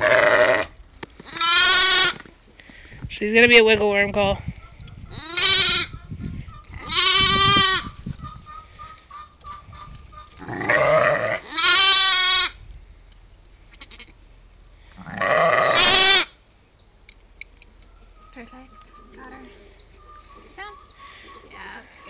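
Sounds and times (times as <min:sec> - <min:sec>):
lamb bleating: 0:00.0 - 0:02.2, 0:05.1 - 0:05.9, 0:06.8 - 0:07.9, 0:10.4 - 0:12.6, 0:13.7 - 0:14.2, 0:15.0 - 0:16.3.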